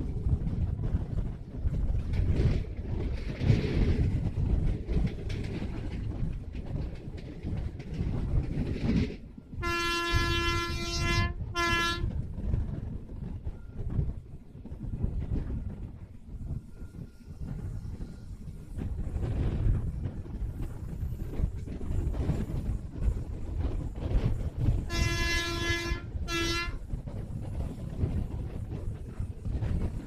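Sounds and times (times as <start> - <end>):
train rumble and wheel clatter: 0.0 - 30.0
train horn blasts: 9.6 - 12.2, 24.8 - 26.8.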